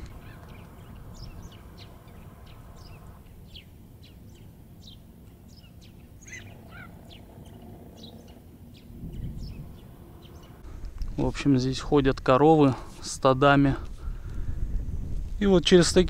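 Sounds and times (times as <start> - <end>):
sparrow chirping: 0.0 - 10.7
low rumble of wind: 0.0 - 16.0.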